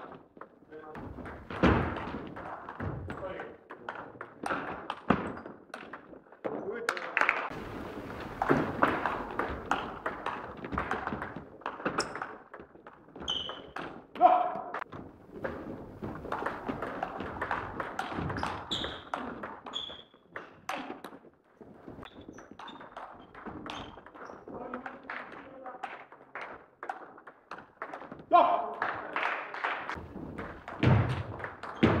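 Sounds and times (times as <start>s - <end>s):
shoes squeaking on wooden floor: 7.5s - 25.0s, 29.9s - 32.0s.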